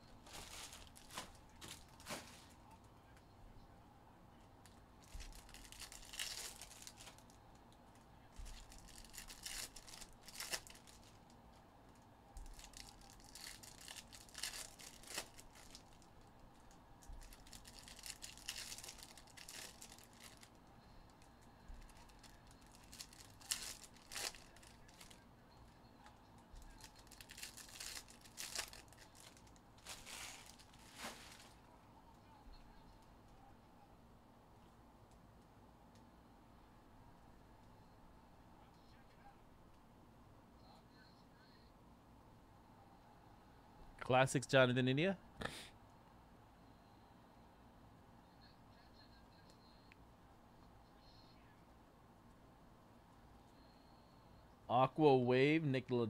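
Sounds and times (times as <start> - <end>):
card pack wrappers tearing: 0.3 - 2.5, 5.1 - 7.3, 8.4 - 11.2, 12.5 - 16.1, 17.1 - 20.6, 21.7 - 25.2, 26.6 - 31.6.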